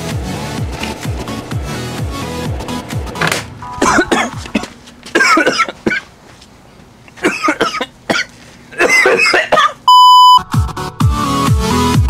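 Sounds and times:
steady electronic beep: 3.6 - 4.6
person coughing: 3.6 - 6.1, 7.2 - 9.8.

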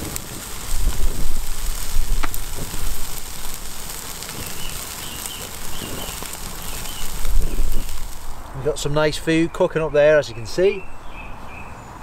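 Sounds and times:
wind rumble on microphone: 0.0 - 4.8, 5.4 - 8.5
meat sizzling on barbecue: 0.0 - 9.4
coals crackling and popping: 0.0 - 9.6.

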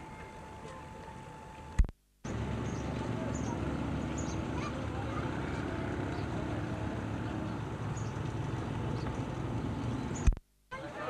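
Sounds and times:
faint distant voices: 2.6 - 9.4.

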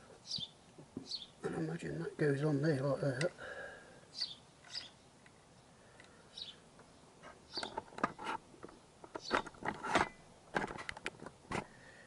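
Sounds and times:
light metallic clicks and scrapes: 4.2 - 6.2, 7.2 - 11.7.

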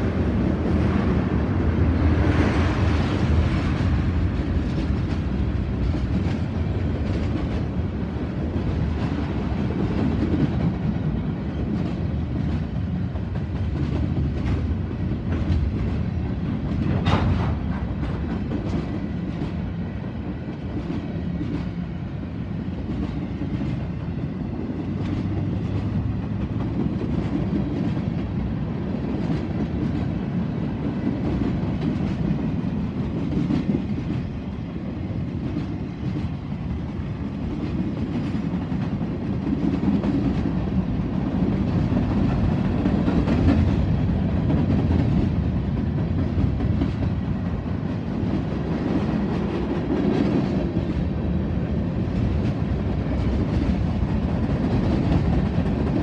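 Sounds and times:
train wheels rumbling on rail: 0.0 - 56.0
wheels clacking over rail joints: 8.4 - 19.6.

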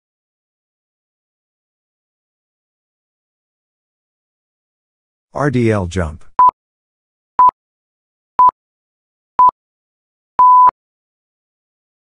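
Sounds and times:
electronic timer beeps: 10.4 - 10.7.

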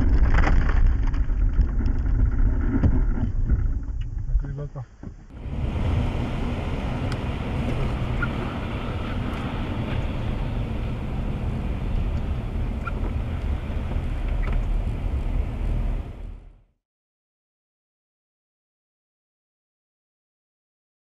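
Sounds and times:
low road rumble: 0.0 - 16.8.

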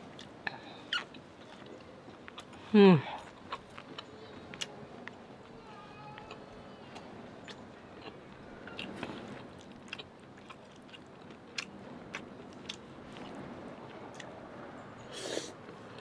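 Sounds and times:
person chewing food: 0.1 - 5.2, 6.2 - 13.4.

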